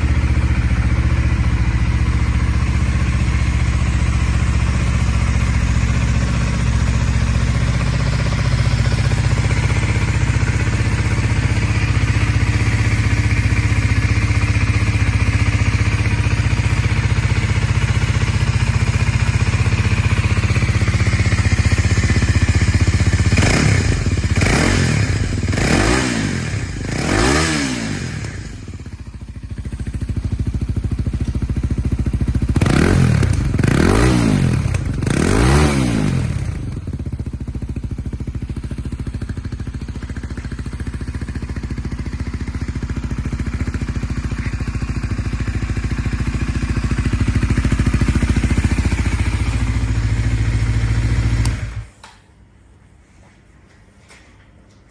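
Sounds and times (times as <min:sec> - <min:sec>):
motorcycle engine revving and idling: 0:00.0 - 0:52.0.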